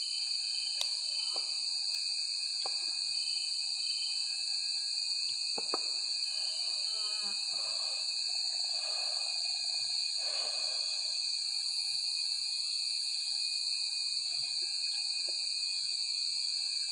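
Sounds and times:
insects droning: 0:00.0 - 0:16.9.

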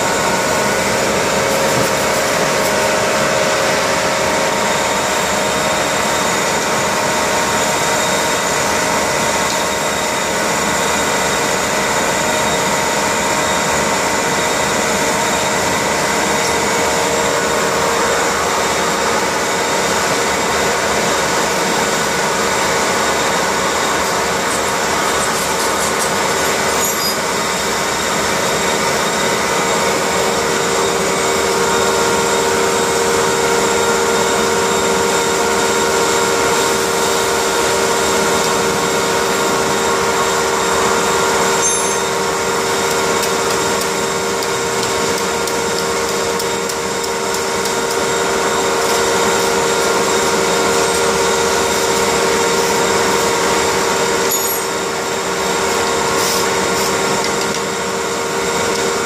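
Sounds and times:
laundry machines humming: 0:00.0 - 0:59.0.

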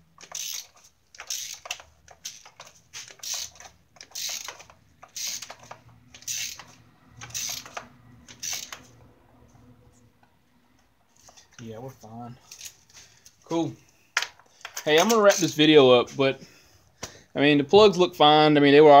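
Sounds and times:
ratchet wrench clicking: 0:00.2 - 0:08.9.

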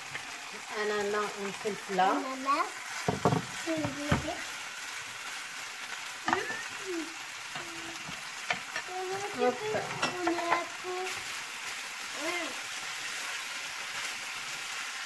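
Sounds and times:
vegetables sizzling in a frying pan: 0:00.0 - 0:15.0
wooden spatula knocking on pan: 0:03.0 - 0:04.4.

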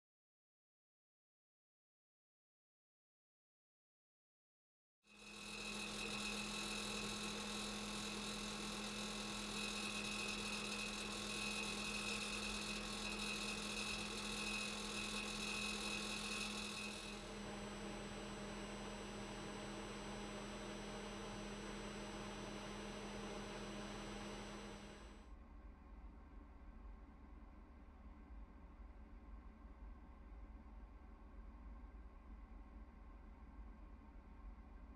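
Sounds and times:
furnace blower humming: 0:05.5 - 0:25.2.

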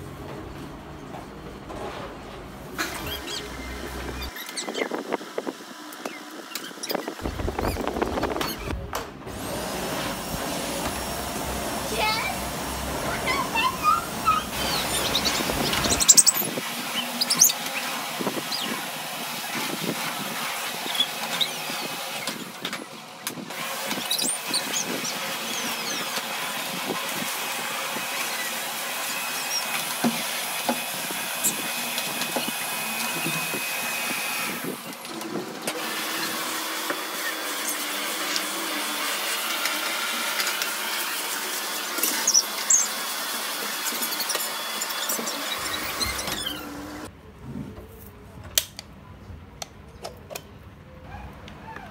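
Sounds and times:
vacuum cleaner running over rug: 0:09.3 - 0:47.1.

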